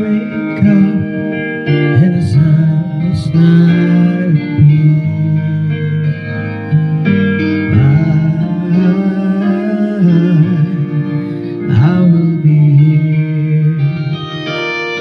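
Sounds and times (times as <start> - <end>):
karaoke backing track: 0.0 - 15.0
low voice singing: 7.7 - 14.2.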